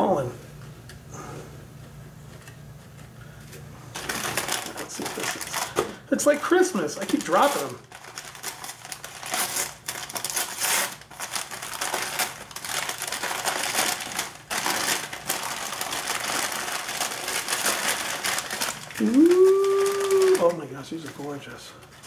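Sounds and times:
paper crinkling and rustling: 0:02.3 - 0:22.0.

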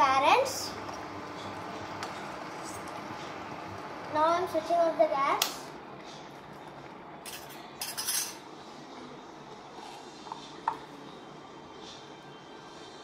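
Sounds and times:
metal spoon clinking on cookware: 0:07.2 - 0:08.4.

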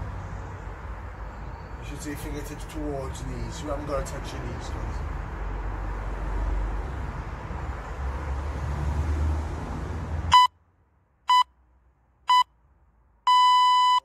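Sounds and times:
short electronic beeps: 0:10.3 - 0:10.5, 0:11.3 - 0:11.5, 0:12.3 - 0:12.5, 0:13.3 - 0:14.0.

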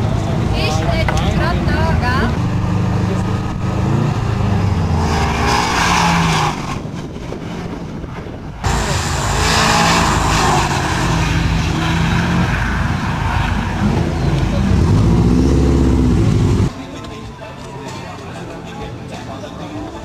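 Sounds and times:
car engine revving hard: 0:02.2 - 0:06.8, 0:08.6 - 0:16.7.

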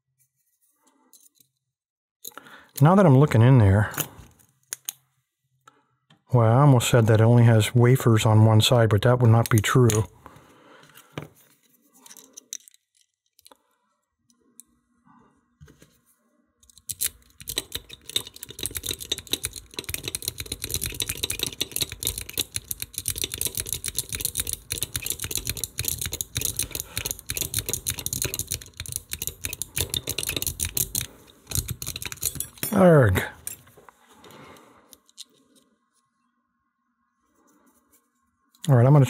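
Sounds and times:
lock pick clicking in lock: 0:16.6 - 0:32.6.

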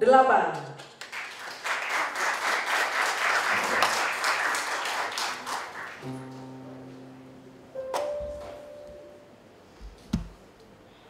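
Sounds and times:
audience applauding: 0:00.8 - 0:06.4
low held note: 0:06.0 - 0:09.5.

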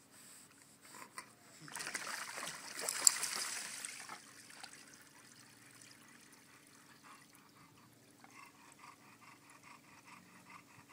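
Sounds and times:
faint trickling water: 0:01.5 - 0:09.0.

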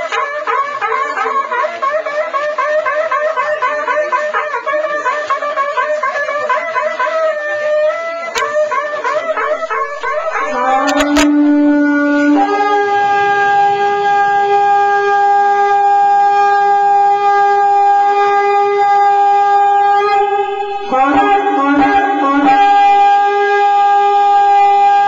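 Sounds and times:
cattle horn blown: 0:08.4 - 0:25.0.

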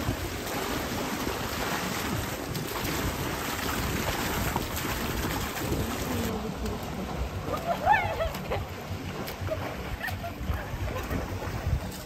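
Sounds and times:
wind blowing across microphone: 0:00.0 - 0:12.0.

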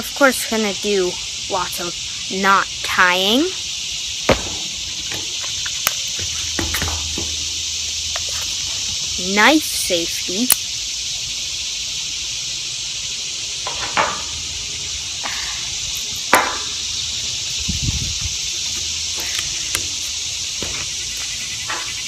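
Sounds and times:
insects chorus: 0:00.0 - 0:22.0
dull thump: 0:04.3 - 0:07.6.

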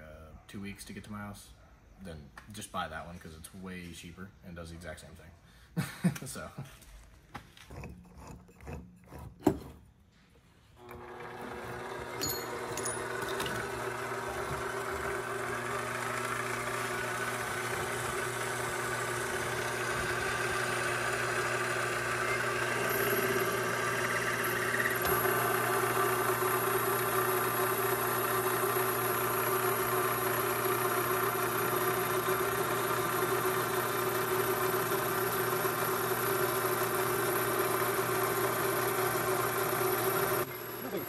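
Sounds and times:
mini lathe motor humming: 0:10.8 - 0:41.0.

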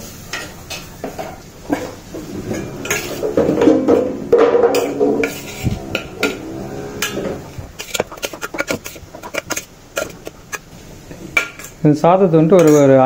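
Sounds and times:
metal spoon scraping steel bowl: 0:02.3 - 0:03.8, 0:04.7 - 0:10.6.

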